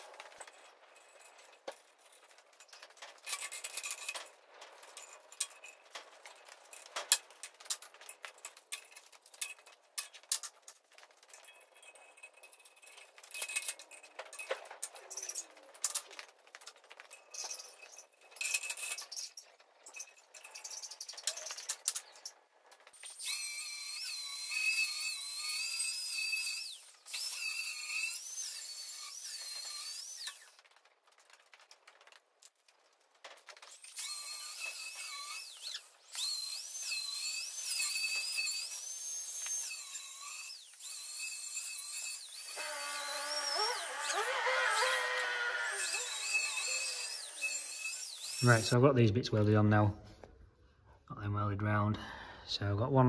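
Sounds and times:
angle grinder cutting steel: 23.0 - 30.6, 33.7 - 48.8.

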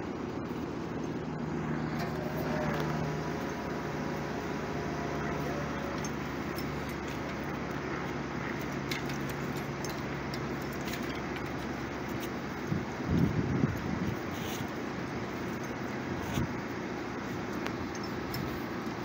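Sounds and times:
diesel engine running: 0.0 - 19.0
metallic clinking of wires: 1.9 - 12.8.

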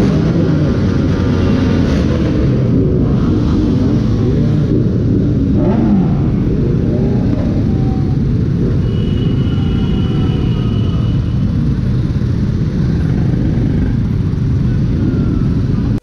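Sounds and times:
motorcycle engines rumbling: 0.0 - 16.0.

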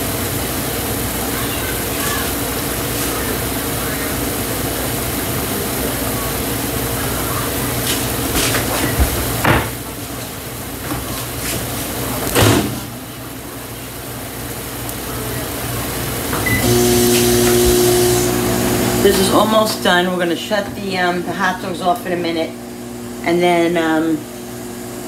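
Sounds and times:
kitchen hum: 0.0 - 25.0
pots and utensils clattering: 7.5 - 12.9.

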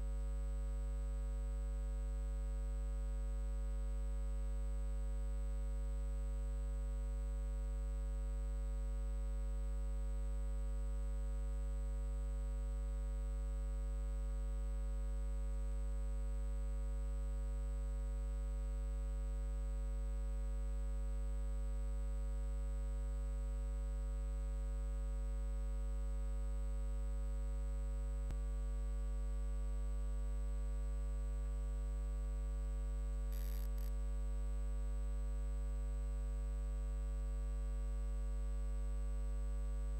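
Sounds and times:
electrical hum: 29.8 - 34.1.

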